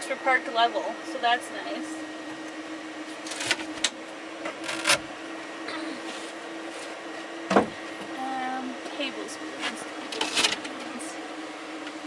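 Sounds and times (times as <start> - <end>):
fridge humming: 0.0 - 12.0
fridge lid shutting thump: 7.5 - 7.8.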